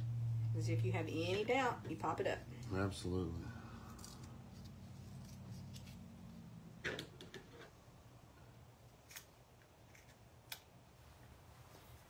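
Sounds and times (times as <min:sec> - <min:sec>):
low hum: 0:00.0 - 0:06.8.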